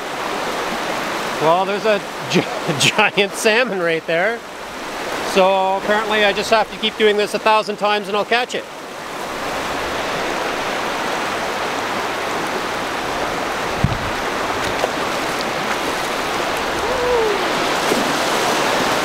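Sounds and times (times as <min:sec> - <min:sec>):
river rushing over rocks: 0:00.0 - 0:19.0
low thump: 0:13.8 - 0:14.2.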